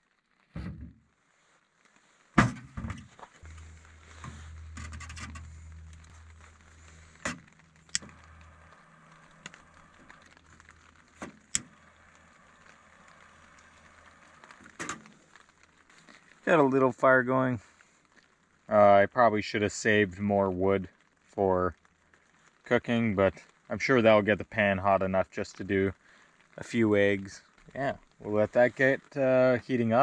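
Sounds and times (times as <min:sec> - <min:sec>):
firewood knocking against metal stove: 0:02.4 - 0:08.5
low steady hum: 0:02.4 - 0:16.8.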